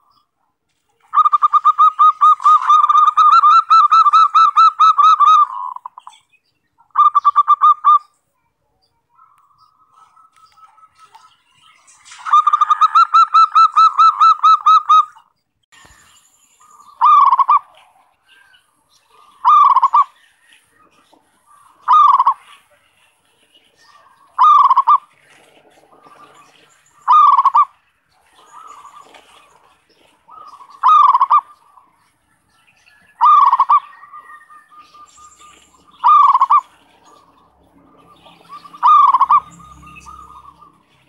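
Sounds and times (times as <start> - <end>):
faint dove calls: 0.9 - 6.2, 16.7 - 18.4, 19.0 - 22.9, 23.9 - 32.0, 33.0 - 37.4, 38.1 - 40.8
dove cooing: 1.0 - 6.1, 6.9 - 8.1, 12.2 - 15.2, 16.7 - 18.4, 19.1 - 22.9, 23.9 - 32.0, 32.9 - 41.0.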